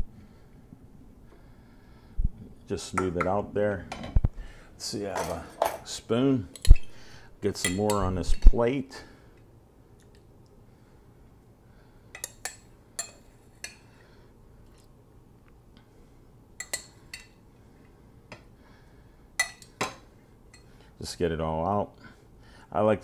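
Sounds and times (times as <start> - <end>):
spoon clinking on pot and plate: 12.2 - 13.9, 16.6 - 17.4, 19.4 - 20.7.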